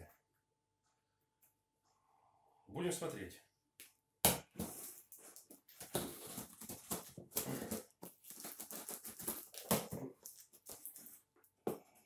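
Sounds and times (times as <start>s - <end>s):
knife cutting packing tape: 4.6s - 11.2s.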